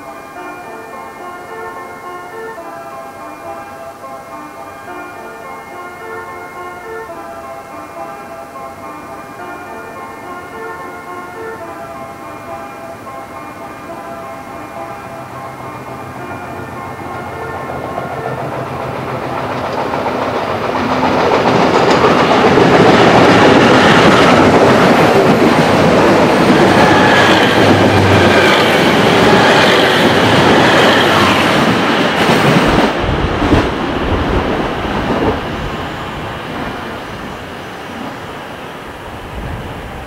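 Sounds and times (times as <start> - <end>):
train wheels clattering over rails: 16.9 - 38.3.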